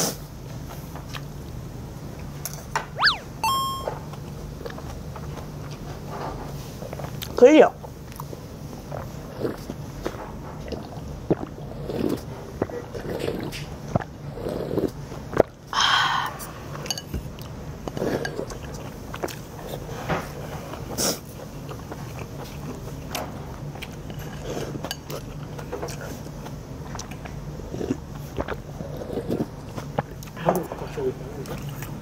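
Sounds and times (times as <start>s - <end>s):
brief louder sound: 3.0s - 4.0s.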